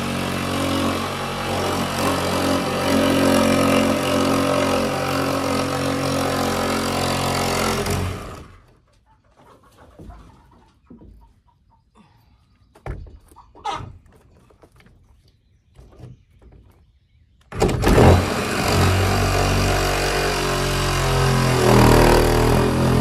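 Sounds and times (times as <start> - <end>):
reciprocating saw cutting wood: 0.0 - 8.7, 17.5 - 23.0.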